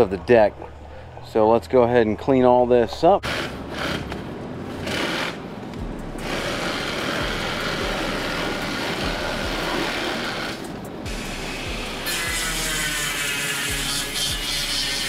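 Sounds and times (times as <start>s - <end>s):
cordless power tool running: 6.2s - 15.0s.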